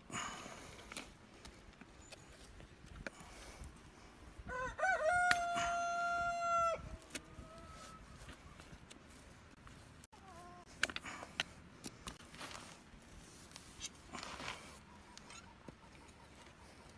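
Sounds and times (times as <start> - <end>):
rooster crowing: 4.5 - 8.1.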